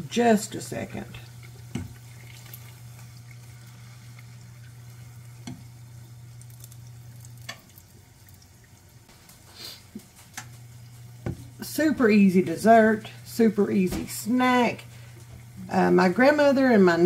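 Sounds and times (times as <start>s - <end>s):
oil bubbling and sizzling: 0.0s - 13.5s, 14.3s - 16.8s
stove hum: 0.0s - 17.0s.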